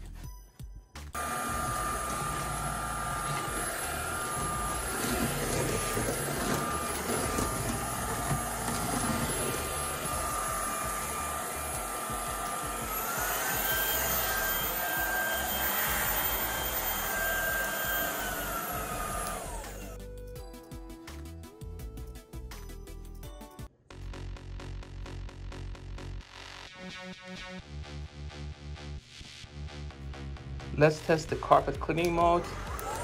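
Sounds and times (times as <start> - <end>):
stick vacuum motor whine: 1.2 - 20.1, 32.0 - 33.0.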